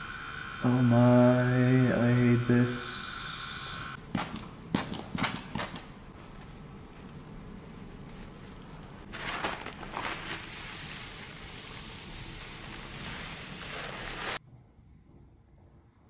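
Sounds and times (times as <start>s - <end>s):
paper towel rustling and rubbing: 6.1s - 14.4s
paper towel crinkles: 6.2s - 14.4s.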